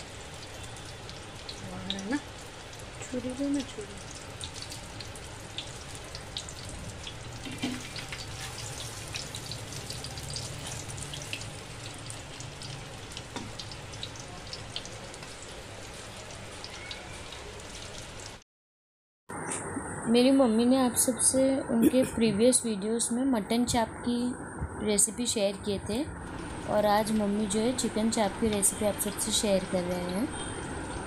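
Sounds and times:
chicken frying in oil: 0.0 - 18.4, 26.2 - 31.0.

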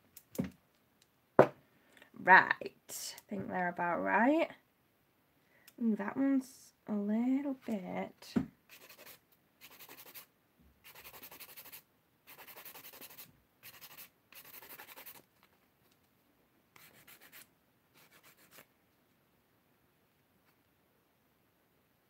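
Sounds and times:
nail file rasping on nails: 8.7 - 15.3, 16.8 - 18.7.

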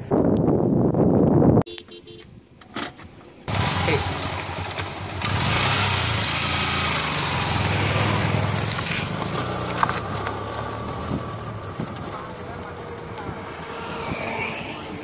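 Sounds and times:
motorcycle engine revving: 3.4 - 15.0.

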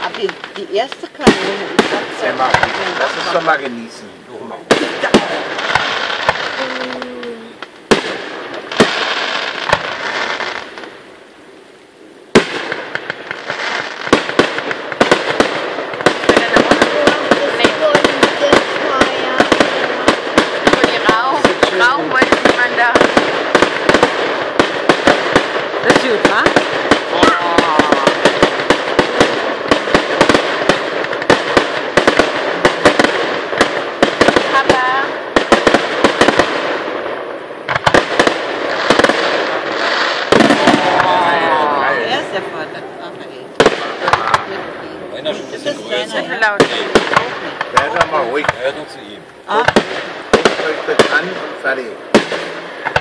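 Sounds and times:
fireworks bursting with bangs: 0.0 - 53.0
fireworks crackling: 0.0 - 53.0.

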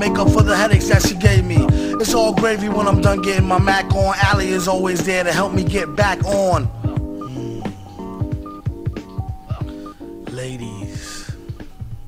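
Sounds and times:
keyboard chords: 0.0 - 12.0
steady drum beat: 0.1 - 12.0.

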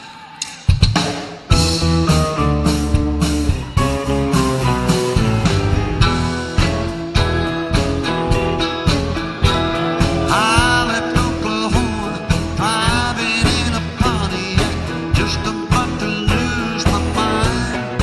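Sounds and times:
live country band playing: 0.6 - 18.0
guitar lead bending notes: 1.5 - 18.0.

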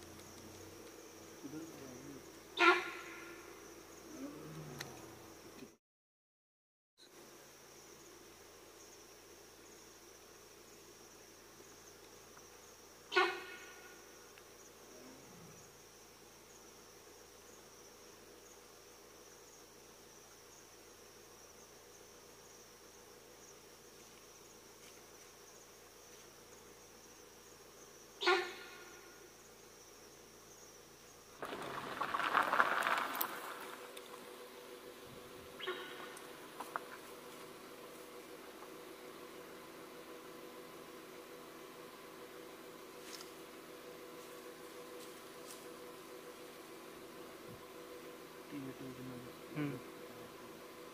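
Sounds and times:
insects chirring: 0.0 - 5.8, 7.0 - 50.9
rustle of dry brush: 31.4 - 34.4, 35.5 - 38.8, 43.0 - 45.9
short sharp animal call: 35.6 - 36.2.

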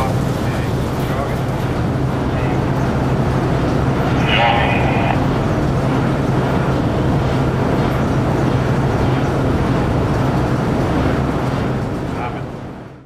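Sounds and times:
bucket elevator mechanical rumble: 0.0 - 12.6.

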